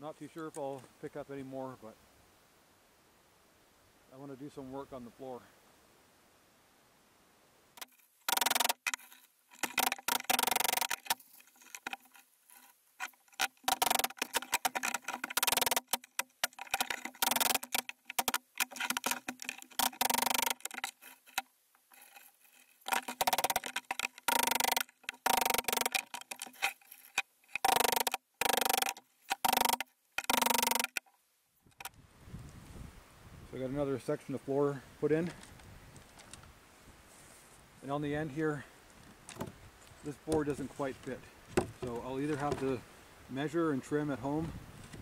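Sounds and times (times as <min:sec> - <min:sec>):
hammer striking nails into wood: 0:08.3 - 0:09.0, 0:09.6 - 0:11.2, 0:13.5 - 0:20.9, 0:22.9 - 0:26.4, 0:27.6 - 0:31.0.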